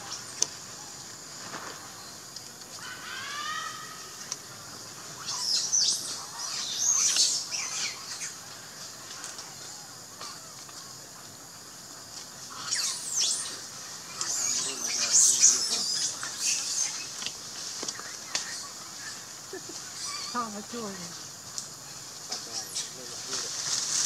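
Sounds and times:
animal chirps and squeals: 0:02.8 - 0:04.2, 0:05.2 - 0:08.4, 0:12.5 - 0:17.2, 0:18.4 - 0:20.6.

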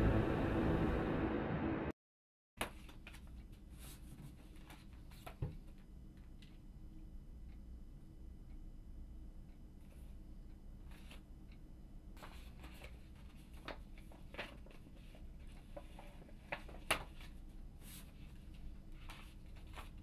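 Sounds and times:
low room hum: 0:02.8 - 0:20.0
paper rustling: 0:12.2 - 0:20.0.

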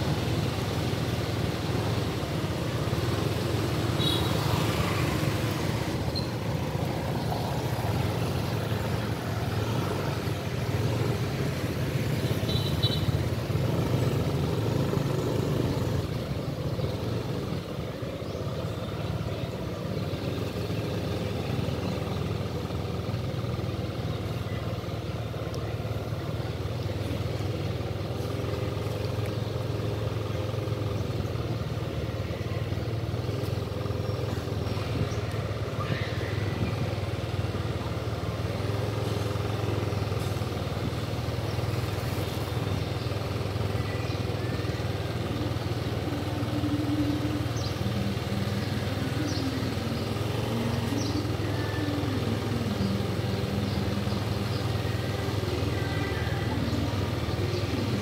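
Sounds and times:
motorbike engine running: 0:00.0 - 0:58.0.

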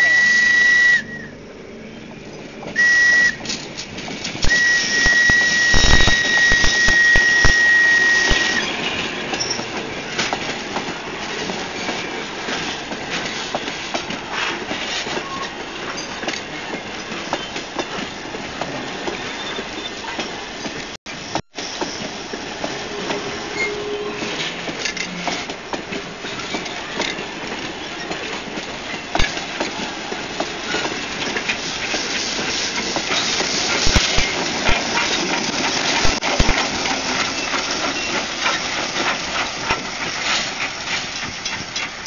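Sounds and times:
locomotive whistle: 0:00.0 - 0:01.4, 0:02.8 - 0:03.6, 0:04.4 - 0:09.6, 0:22.7 - 0:24.6
train wheels clicking over rail joints: 0:02.3 - 0:42.0.

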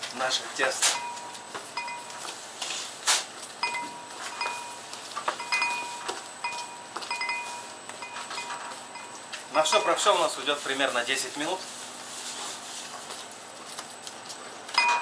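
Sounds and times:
dough kneaded on steel table: 0:00.0 - 0:15.0
high ringing tones: 0:00.8 - 0:02.4, 0:03.6 - 0:11.6, 0:14.7 - 0:15.0.

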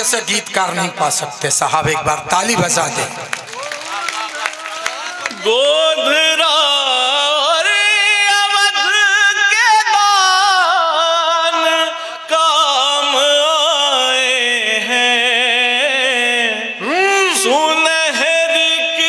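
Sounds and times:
man singing with vibrato: 0:04.9 - 0:19.0.

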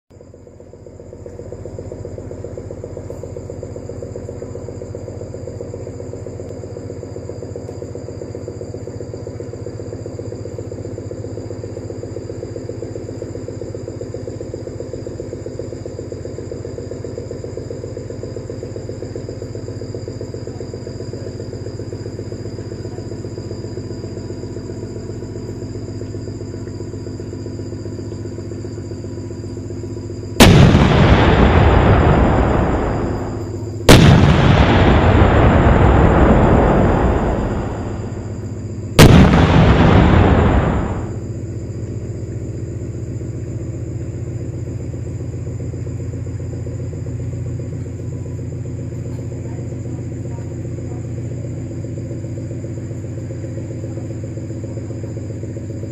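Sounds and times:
low humming drone: 0:21.4 - 0:46.8.

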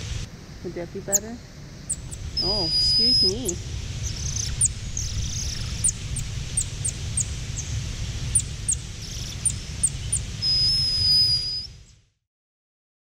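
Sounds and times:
low background rumble: 0:00.0 - 0:12.2
monkey chirping: 0:01.1 - 0:07.7, 0:08.3 - 0:11.7
monkey high whistle: 0:01.9 - 0:03.6, 0:10.4 - 0:11.8.

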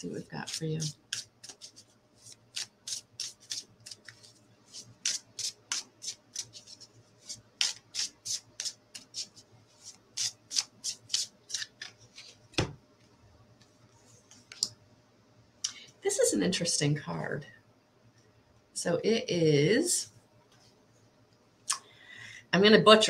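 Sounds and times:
cards being shuffled: 0:00.4 - 0:12.8
card deck thump: 0:12.6 - 0:12.8.

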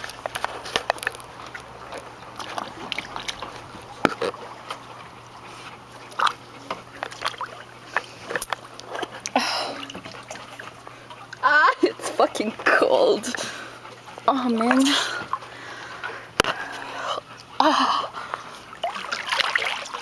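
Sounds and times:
small underwater clicks and knocks: 0:00.0 - 0:04.9, 0:06.1 - 0:09.3
muffled underwater water sloshing: 0:00.0 - 0:16.7.

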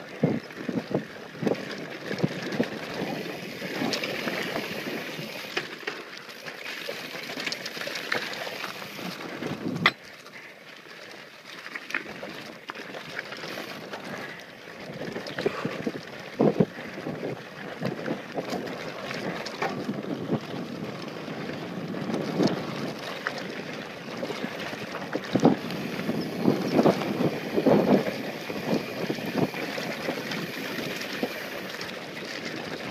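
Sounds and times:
bike tyres on loose gravel: 0:00.0 - 0:32.9
bike knocking and rattling: 0:00.1 - 0:10.3, 0:11.9 - 0:32.9
wind on microphone: 0:24.2 - 0:32.0.

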